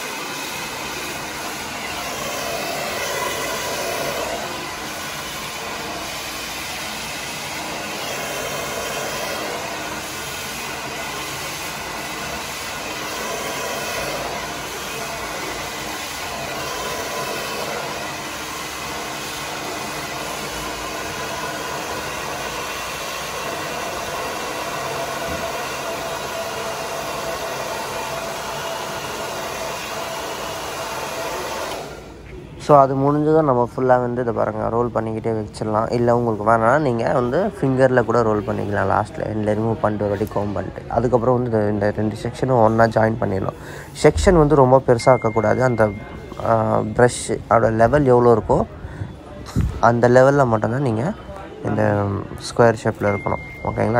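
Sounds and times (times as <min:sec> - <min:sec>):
hair dryer blowing: 0:00.0 - 0:32.2, 0:43.4 - 0:47.3.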